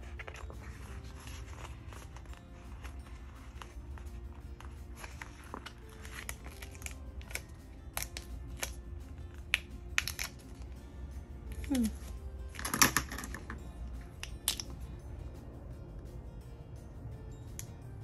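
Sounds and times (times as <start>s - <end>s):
paper and stickers clicking: 0.0s - 10.8s
faint background music: 0.0s - 18.0s.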